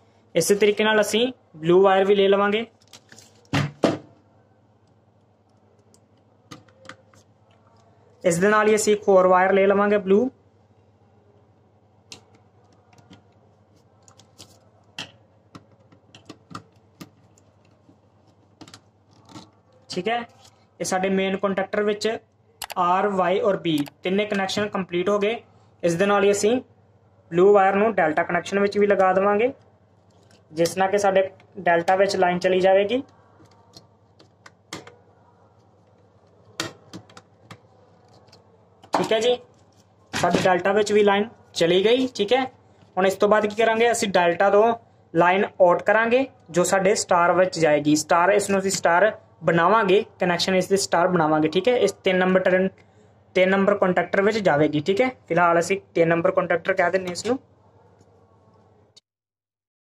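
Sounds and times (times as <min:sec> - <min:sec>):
wire clicking and tapping: 0:14.0 - 0:19.9, 0:33.0 - 0:35.0.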